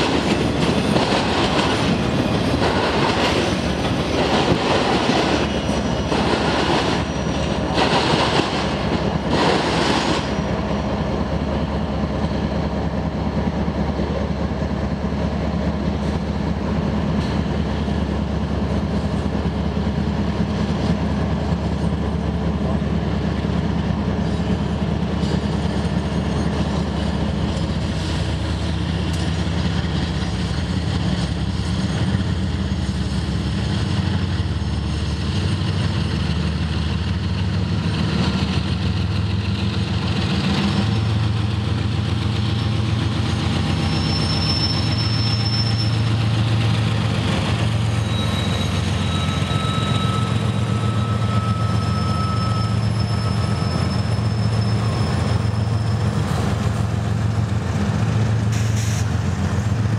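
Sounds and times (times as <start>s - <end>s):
diesel locomotives droning: 0.0s - 59.9s
high-pitched wheel squeals: 7.0s - 7.6s, 43.6s - 46.4s, 47.7s - 56.4s.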